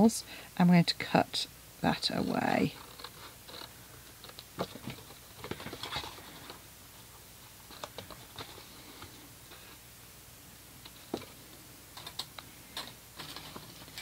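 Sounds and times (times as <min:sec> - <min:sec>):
paper rustle: 0:02.8 - 0:09.7, 0:12.8 - 0:14.0.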